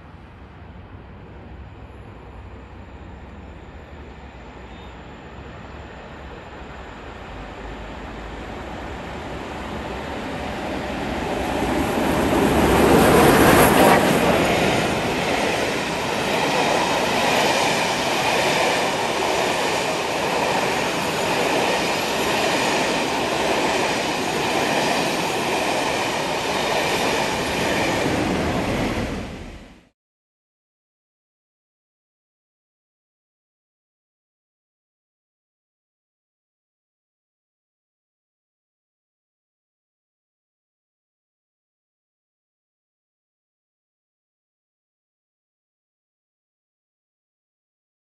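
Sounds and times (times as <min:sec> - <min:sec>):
steam train passing: 0:00.0 - 0:29.9.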